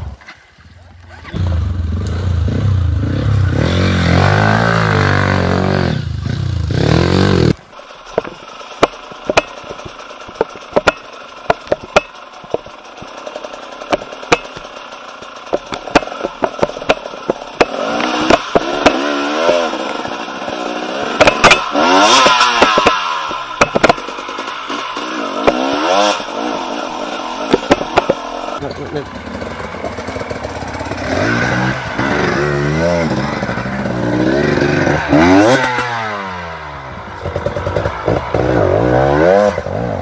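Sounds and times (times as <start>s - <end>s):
dirt bike engine revving: 1.1s - 40.0s
bike knocking and clattering: 8.1s - 32.4s.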